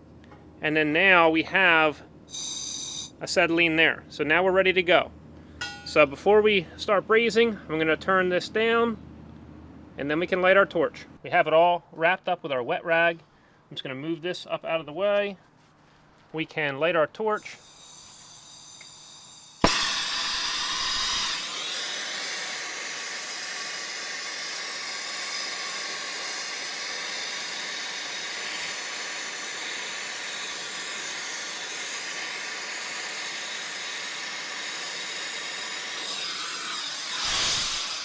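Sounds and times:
torch flame hissing: 17.4 - 38.0
torch lighting pop: 19.6 - 21.4, 37.2 - 38.0.

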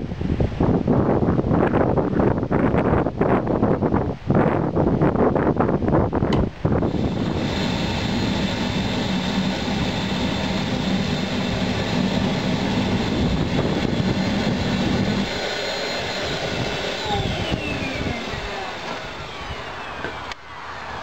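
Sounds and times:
low hum: 6.3 - 20.6
furnace burner roaring: 6.3 - 21.0.

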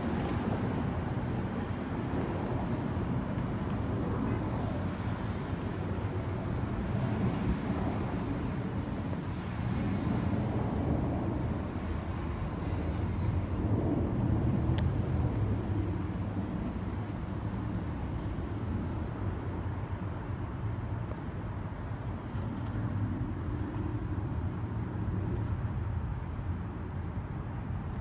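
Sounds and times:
distant jet engine rumble: 0.0 - 28.0.

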